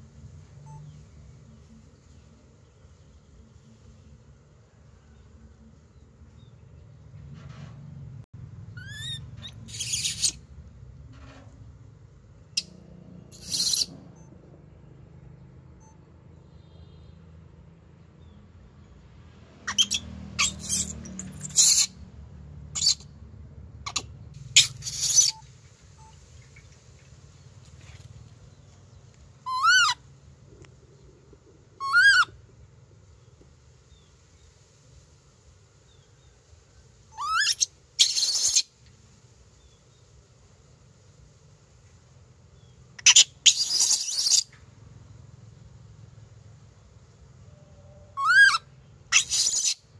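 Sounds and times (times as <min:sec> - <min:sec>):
baby macaque cooing: 0:08.8 - 0:10.4, 0:13.4 - 0:13.9, 0:19.7 - 0:21.9, 0:22.8 - 0:23.0, 0:24.6 - 0:25.4, 0:29.5 - 0:30.0, 0:31.8 - 0:32.4, 0:37.2 - 0:38.7, 0:43.0 - 0:44.5, 0:48.2 - 0:49.8.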